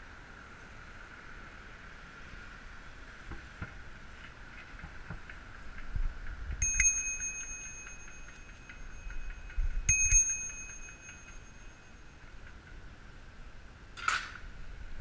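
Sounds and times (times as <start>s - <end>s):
bicycle bell ringing: 6.6s - 12.4s.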